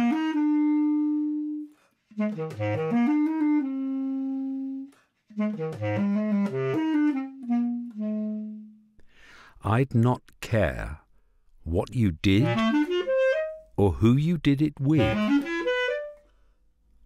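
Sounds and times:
basset horn playing: 0.0s - 8.8s, 12.4s - 13.7s, 14.9s - 16.3s.

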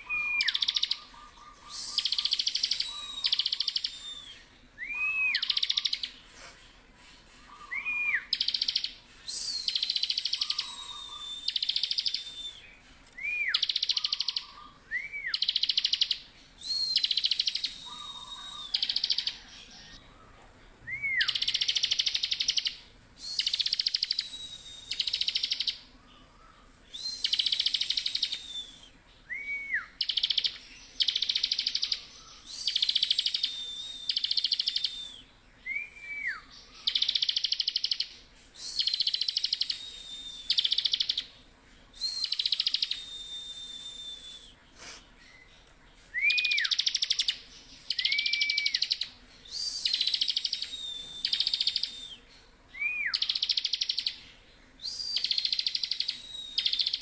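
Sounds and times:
thin high bird whistles: 7.3s - 20.0s, 26.9s - 41.3s, 41.9s - 54.2s, 54.8s - 57.0s.

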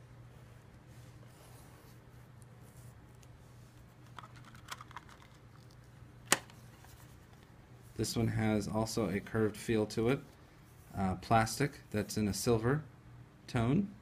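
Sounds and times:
plastic packaging clicks: 4.1s - 5.4s.

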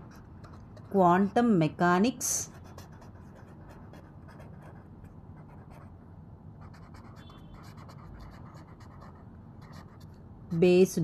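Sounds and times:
pen scratching on paper: 0.0s - 1.5s, 2.3s - 5.9s, 6.6s - 10.2s
low background hum: 0.0s - 11.0s.

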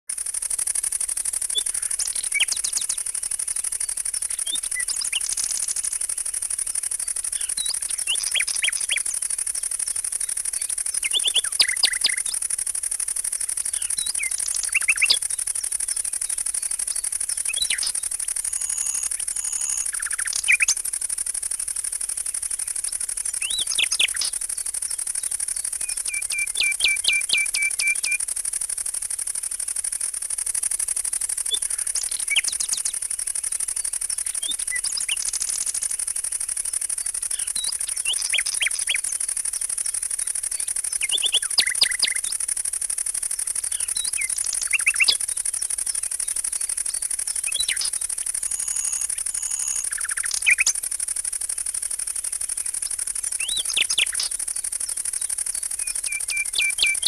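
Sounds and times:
high-pitched hiss: 0.1s - 57.0s
bird trill: 1.4s - 6.1s, 6.8s - 12.5s, 13.3s - 21.5s, 22.5s - 28.2s, 33.8s - 36.1s, 36.7s - 39.2s, 40.1s - 42.4s, 43.1s - 50.8s, 52.6s - 57.0s.

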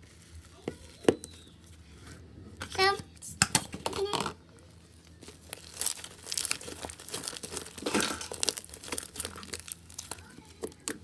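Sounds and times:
slime crackling and popping: 4.0s - 11.0s.

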